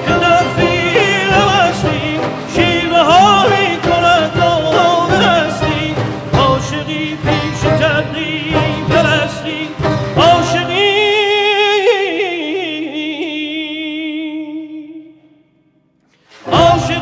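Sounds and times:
instrumental accompaniment: 0.0s - 11.9s, 16.2s - 17.0s
man singing: 0.0s - 15.5s, 16.4s - 17.0s.

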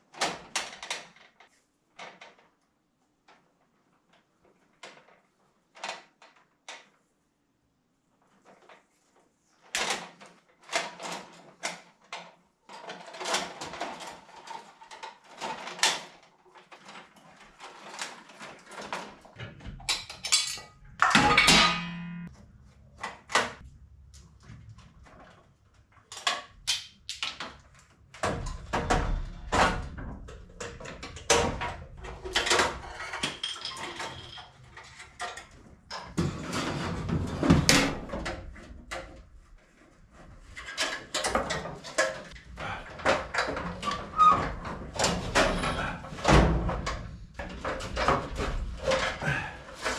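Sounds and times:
clatter of metal panel parts: 9.8s - 22.3s, 26.0s - 39.3s, 40.3s - 49.9s.

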